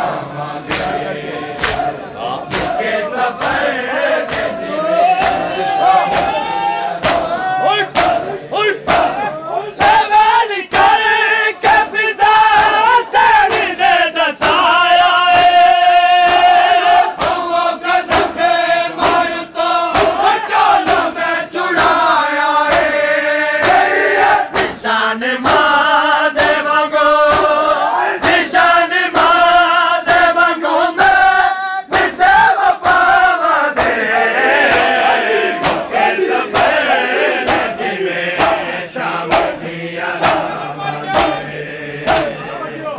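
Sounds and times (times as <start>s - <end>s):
men chanting in unison: 0.0s - 42.9s
hands slapping chests: 0.6s - 1.0s, 1.6s - 10.0s, 10.7s - 11.0s, 13.5s - 13.8s, 15.3s - 16.6s, 17.2s - 17.5s, 18.1s - 18.4s, 19.0s - 21.2s, 21.8s - 22.1s, 22.7s - 23.0s, 23.6s - 24.8s, 25.4s - 25.7s, 26.4s - 26.7s, 27.3s - 27.6s, 29.1s - 29.5s, 31.9s - 33.2s, 33.8s - 41.4s, 42.1s - 42.4s.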